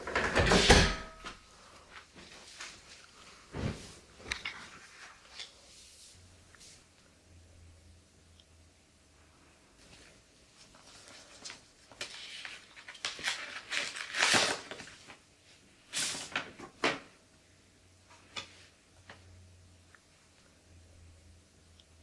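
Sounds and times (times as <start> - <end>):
paper rustling and crackling: 9.8 - 15.3, 15.9 - 17.1.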